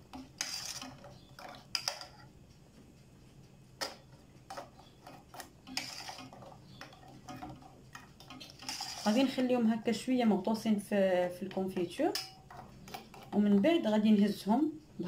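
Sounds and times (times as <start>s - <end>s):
spoon tapping metal pot: 0.0s - 2.3s, 3.8s - 9.6s, 11.3s - 13.8s.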